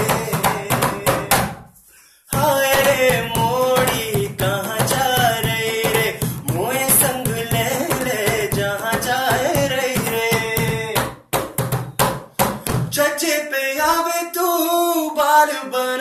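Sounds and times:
hand drumming on plastic tub: 0:00.0 - 0:01.6, 0:02.4 - 0:13.0
man singing: 0:00.0 - 0:01.6, 0:02.3 - 0:11.2, 0:12.7 - 0:16.0.

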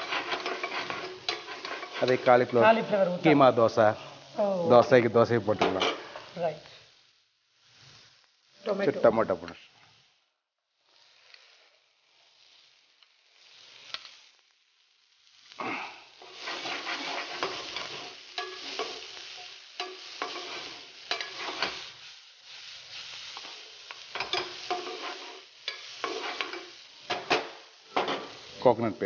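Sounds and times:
spoon scraping a frying pan: 0:00.0 - 0:02.8, 0:05.6 - 0:06.2, 0:16.2 - 0:28.5
vegetables sizzling in a pan: 0:00.0 - 0:29.0.

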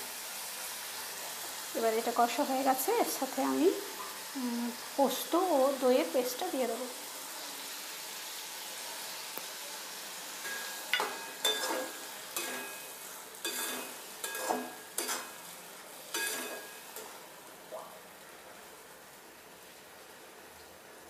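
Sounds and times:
paste sizzling in hot oil: 0:00.0 - 0:21.0
spatula scraping a pan: 0:10.4 - 0:17.2.

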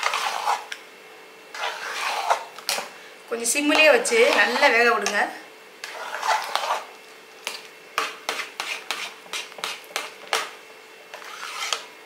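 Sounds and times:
metal ladle scraping a pot: 0:00.0 - 0:00.8, 0:01.5 - 0:02.8, 0:05.8 - 0:07.0, 0:08.0 - 0:09.8, 0:11.1 - 0:11.9.

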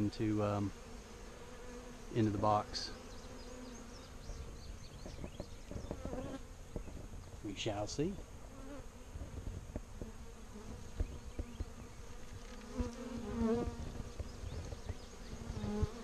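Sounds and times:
honey bees buzzing: 0:00.0 - 0:16.0
low thumps on microphone: 0:04.3 - 0:07.5, 0:09.2 - 0:11.8.

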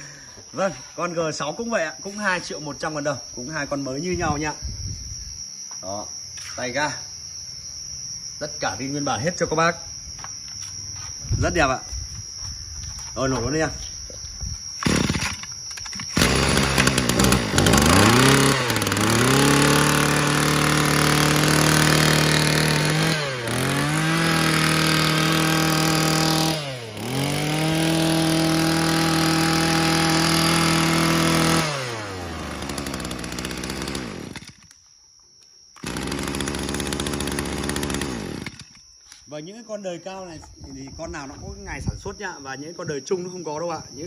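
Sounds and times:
brush cutter engine revving: 0:14.8 - 0:34.7, 0:35.8 - 0:38.8.

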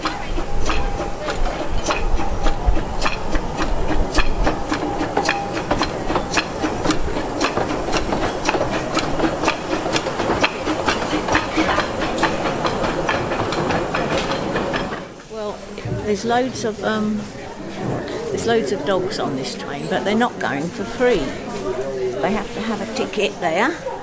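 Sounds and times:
sharp clicks of wheels on track: 0:00.0 - 0:15.3
steam hissing: 0:00.0 - 0:23.3
steam locomotive running slowly: 0:00.0 - 0:24.0.

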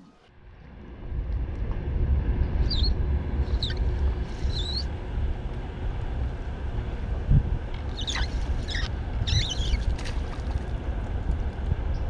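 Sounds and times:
wind buffeting microphone: 0:00.8 - 0:12.0
small bird chirping: 0:02.6 - 0:04.9, 0:07.8 - 0:10.0.

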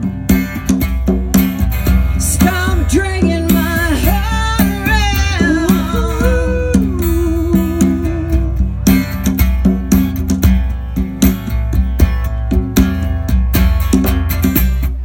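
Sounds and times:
hand drum: 0:00.0 - 0:15.0
strummed acoustic guitar: 0:00.0 - 0:15.0
person singing: 0:02.2 - 0:08.8.

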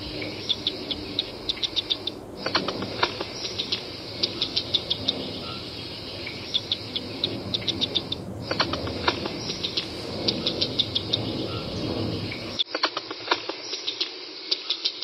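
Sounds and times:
squirrel clicking: 0:00.0 - 0:05.1, 0:06.3 - 0:11.2
steady outdoor hiss: 0:00.0 - 0:15.0.

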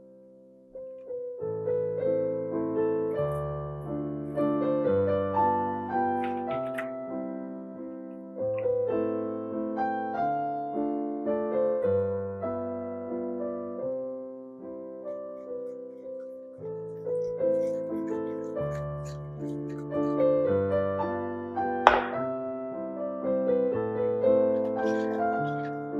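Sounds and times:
gentle piano music: 0:00.0 - 0:25.9.

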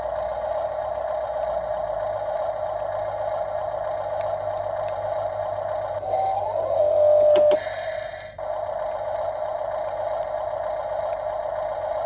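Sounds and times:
small electric motor whining: 0:06.0 - 0:07.8
sharp clicks: 0:07.2 - 0:07.6.

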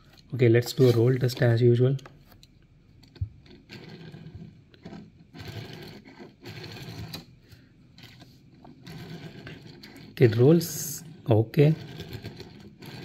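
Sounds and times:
toy car wheels whirring: 0:03.4 - 0:07.3, 0:08.0 - 0:13.0.

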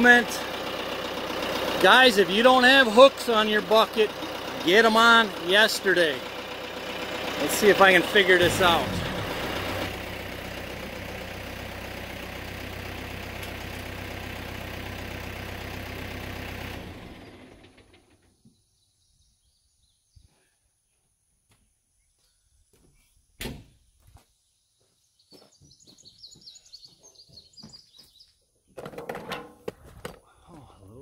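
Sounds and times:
engine idling: 0:00.0 - 0:18.4.

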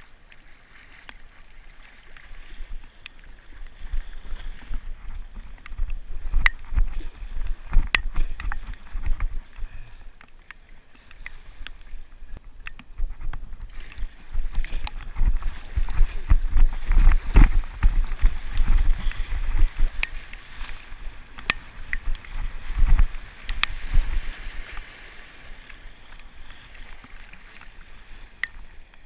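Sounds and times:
paddle strokes through water: 0:00.0 - 0:29.0
water sloshing around kayak: 0:00.0 - 0:29.0
wind buffeting microphone: 0:12.3 - 0:24.8
water ticks hitting camera: 0:21.3 - 0:23.8.

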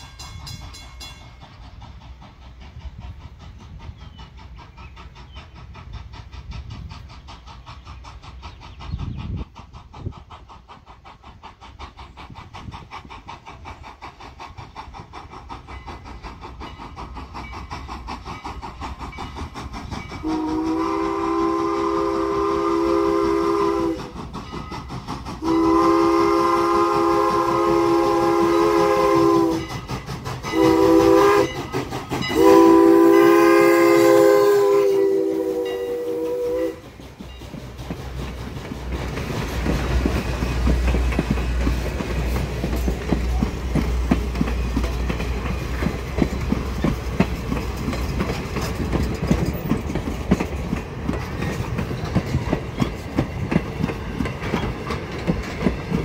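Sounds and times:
train coaches rumbling: 0:00.0 - 0:56.0
wheels clicking over rail joints: 0:00.0 - 0:56.0
steam whistle blasts: 0:20.2 - 0:24.2, 0:25.4 - 0:29.8, 0:30.5 - 0:36.9.

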